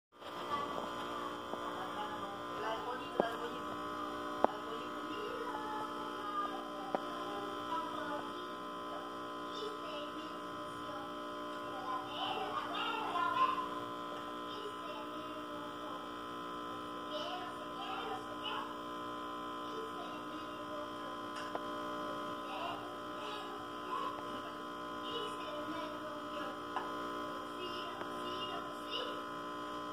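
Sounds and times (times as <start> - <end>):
electrical mains hum: 0.2 - 29.9
faint voices: 0.3 - 18.8.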